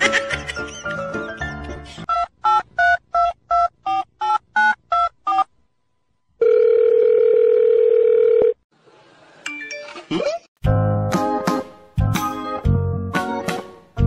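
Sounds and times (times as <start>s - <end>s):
low phone line tone: 6.4s - 8.6s.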